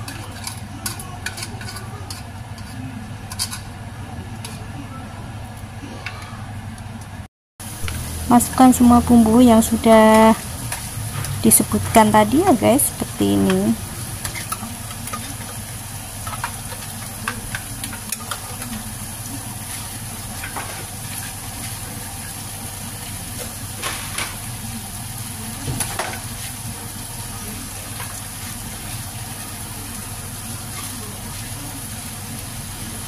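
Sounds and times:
spatula scraping wok: 0:00.0 - 0:03.7, 0:08.9 - 0:22.0.

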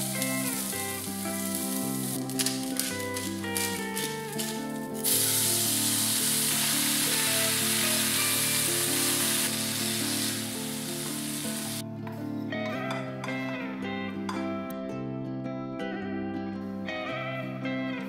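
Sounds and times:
beans sizzling in a frying pan: 0:00.0 - 0:11.8
soft background music: 0:00.0 - 0:18.0.

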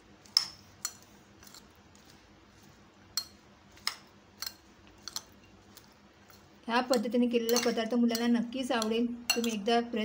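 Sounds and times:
metal spoon clinking glass bowl: 0:06.3 - 0:09.7.

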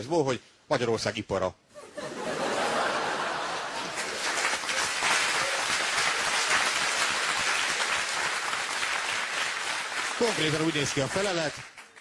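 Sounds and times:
audience laughing: 0:01.8 - 0:04.3
audience applauding: 0:02.7 - 0:12.0.

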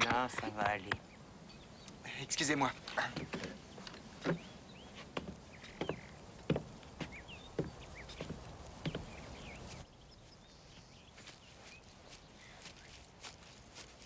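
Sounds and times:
birds chirping: 0:00.0 - 0:14.0
footsteps walking: 0:02.8 - 0:14.0.

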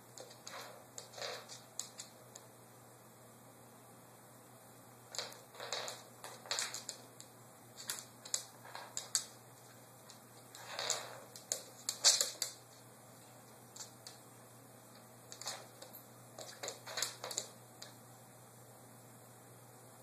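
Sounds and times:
dog claws clicking on wooden floor: 0:00.1 - 0:02.5, 0:05.1 - 0:12.7, 0:13.7 - 0:14.2, 0:15.3 - 0:18.0.

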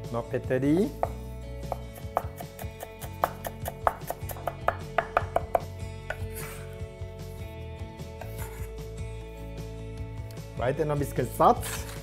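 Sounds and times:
knife chopping on a cutting board: 0:00.9 - 0:06.6.

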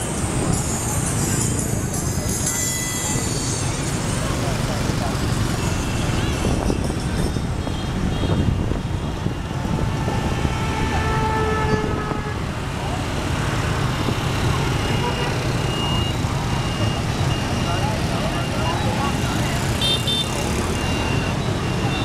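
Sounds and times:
motorbike traffic rumbling: 0:00.0 - 0:22.0
vehicle horn: 0:07.6 - 0:12.5, 0:19.8 - 0:20.4.

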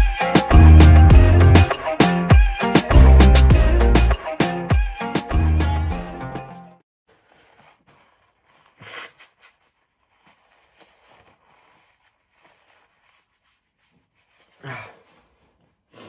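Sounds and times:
paper tissue rustling: 0:07.1 - 0:15.9.

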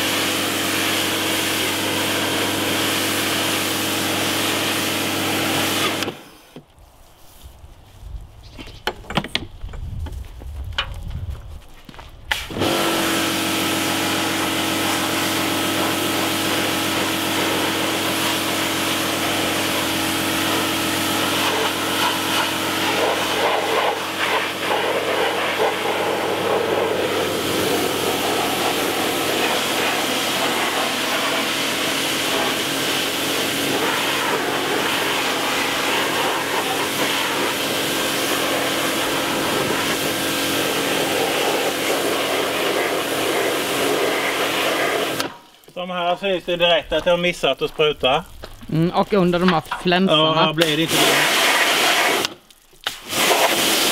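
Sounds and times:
pressure washer motor humming: 0:00.0 - 0:06.6, 0:12.5 - 0:45.4, 0:50.6 - 0:52.3
water jet hissing on a hull: 0:12.4 - 0:45.4, 0:50.7 - 0:53.9.

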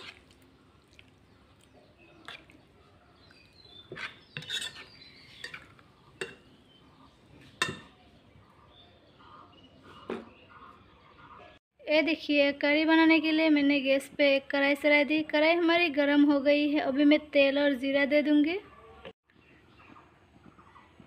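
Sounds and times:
spoon clinking and scraping bowl: 0:03.7 - 0:06.5, 0:07.5 - 0:07.9.

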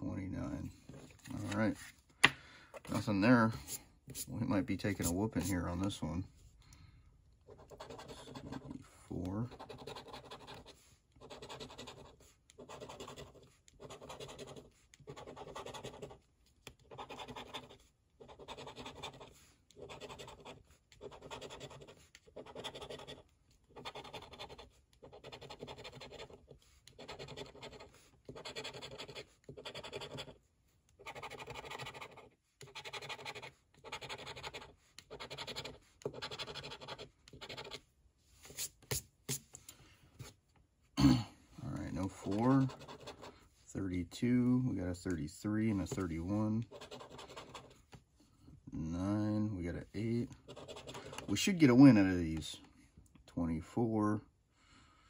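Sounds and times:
coin scratching lottery ticket: 0:09.4 - 0:16.2, 0:16.8 - 0:30.4, 0:31.0 - 0:37.8, 0:42.2 - 0:43.3, 0:46.6 - 0:47.7, 0:50.4 - 0:51.6.

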